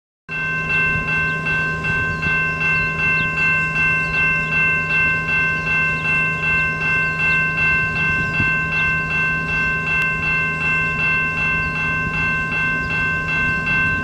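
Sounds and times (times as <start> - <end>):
crossing bell ringing: 0.3 - 14.0
distant diesel locomotive drone: 0.3 - 14.0.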